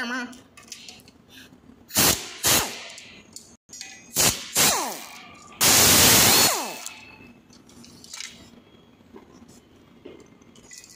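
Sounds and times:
power driver bursts: 4.2s - 6.9s.

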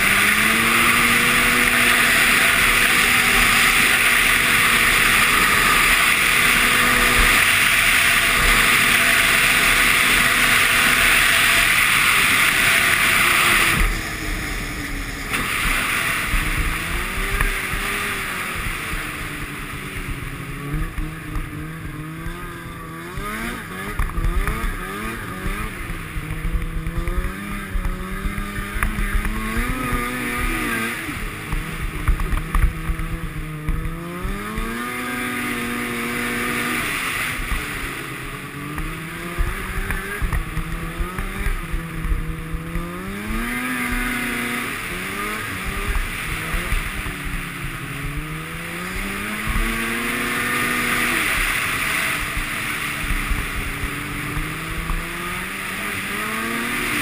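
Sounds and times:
snowmobile engine revving: 0.0s - 57.0s.

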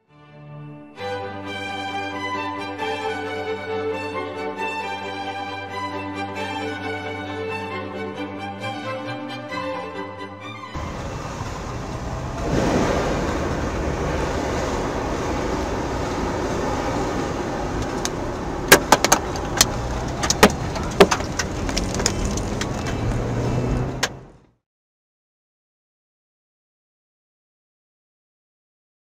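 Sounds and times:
road wind and rain noise in car: 10.8s - 24.6s
sharp knocks on car: 18.7s - 19.3s, 20.3s - 21.3s.

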